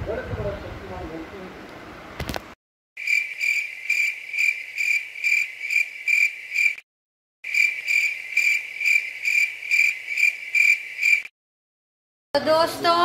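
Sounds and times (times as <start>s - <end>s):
cricket chirping: 3.0s - 6.8s, 7.4s - 11.3s.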